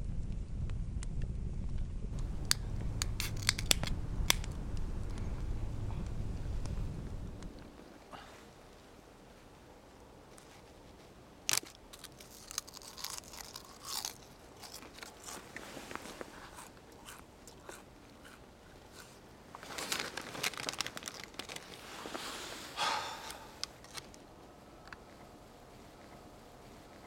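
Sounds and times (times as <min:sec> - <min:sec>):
sharp clicks: 0:02.2 - 0:05.4
winter clothing rustling: 0:14.4 - 0:16.8, 0:18.8 - 0:27.0
snow crunching: 0:15.1 - 0:16.8, 0:19.0 - 0:23.6.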